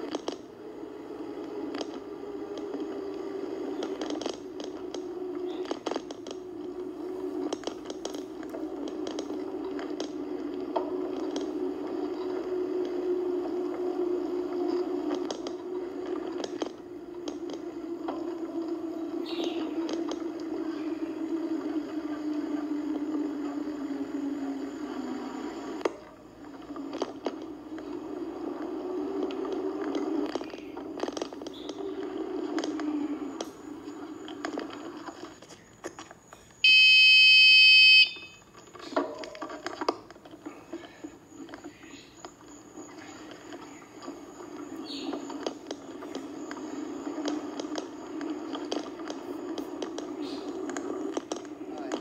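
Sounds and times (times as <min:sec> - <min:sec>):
sharp clicks and rattles: 0:00.0 - 0:23.4, 0:25.8 - 0:36.8
bike riding rumble: 0:00.0 - 0:52.0
car road and engine drone: 0:00.0 - 0:52.0.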